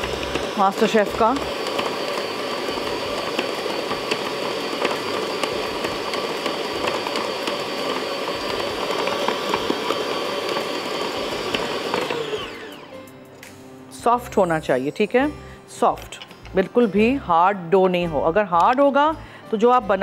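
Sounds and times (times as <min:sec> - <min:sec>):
stand mixer kneading dough: 0:00.0 - 0:12.9.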